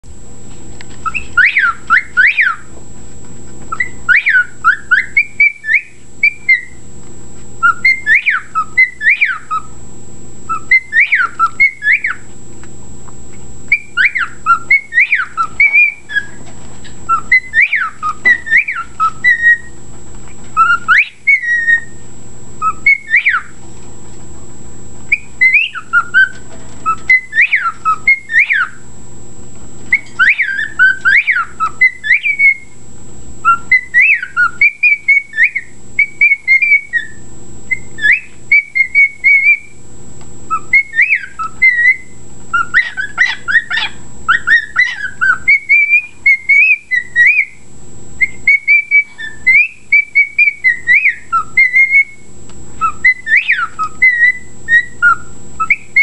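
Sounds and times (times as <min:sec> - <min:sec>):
cockatiel whistling tunes: 0:01.0 - 0:02.7, 0:03.7 - 0:06.8, 0:07.6 - 0:09.7, 0:10.5 - 0:12.2, 0:13.7 - 0:16.4, 0:17.1 - 0:19.8, 0:20.6 - 0:22.0, 0:22.6 - 0:23.6, 0:25.1 - 0:28.8, 0:29.9 - 0:32.8, 0:33.4 - 0:39.8, 0:40.5 - 0:47.6, 0:48.2 - 0:56.0.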